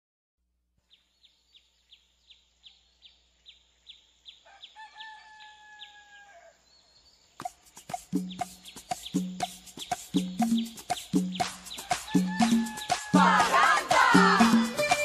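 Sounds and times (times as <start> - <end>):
high falling bird chirps: 0.9 - 13.2
two-tone bird call: 7.4 - 15.0.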